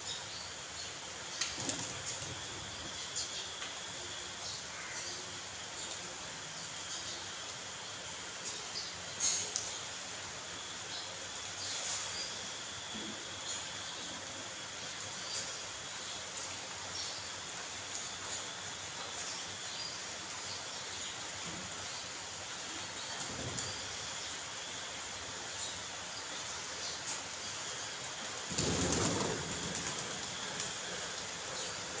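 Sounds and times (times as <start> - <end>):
rain falling on puddles: 14.5 - 32.0.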